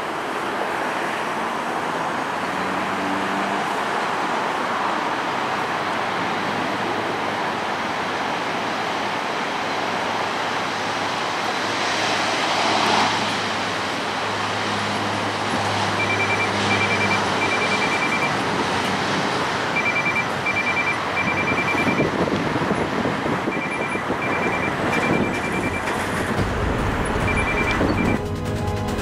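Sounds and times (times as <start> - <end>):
turboprop engine roar: 0.0 - 29.0
low drone: 25.4 - 29.0.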